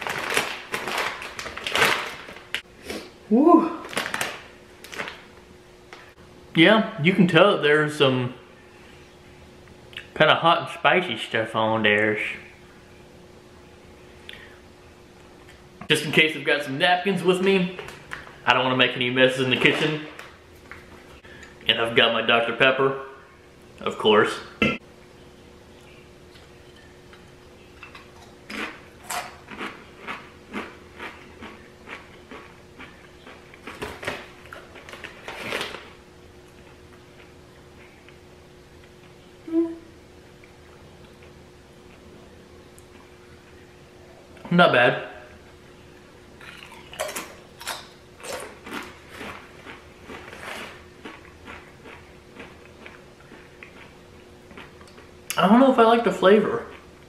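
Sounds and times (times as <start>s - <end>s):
faint steady hum: 0.0s - 57.0s
chips being chewed: 28.1s - 35.8s, 46.4s - 55.1s.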